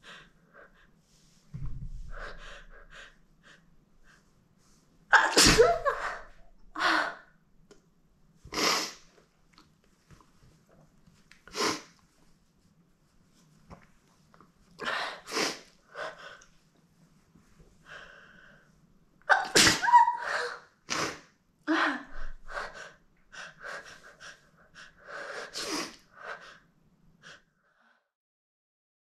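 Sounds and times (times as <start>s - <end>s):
woman sneezing: 5.1s - 6.4s, 19.3s - 21.2s.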